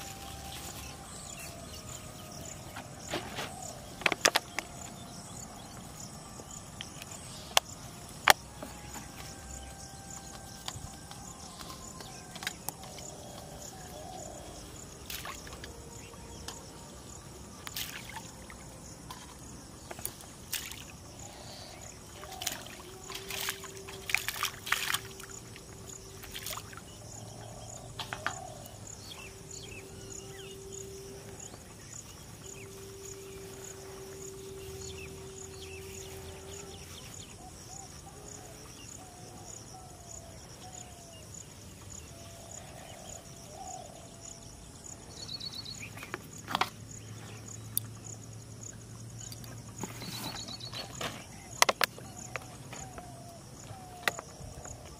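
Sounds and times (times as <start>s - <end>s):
insects chirping: 0.0s - 54.9s
knocks and splashes: 17.6s - 21.0s, 22.2s - 26.8s.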